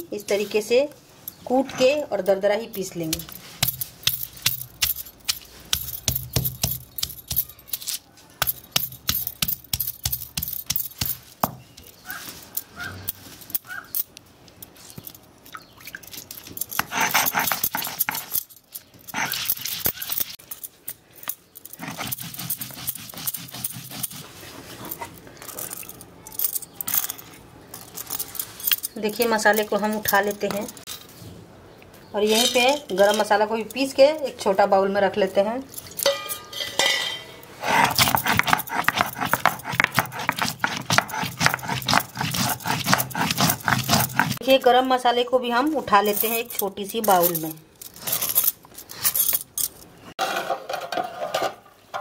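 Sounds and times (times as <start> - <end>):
stone grinder scraping: 16.8 - 18.4, 19.1 - 20.1, 21.8 - 24.3, 37.6 - 44.4
stone grinder knocking: 37.6 - 44.4.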